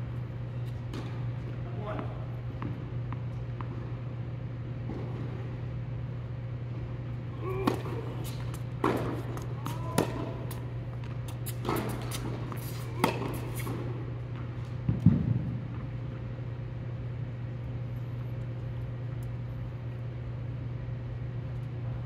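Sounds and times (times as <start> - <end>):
steady low hum: 0.0 - 22.0
tennis ball hit by racquets: 6.7 - 15.8.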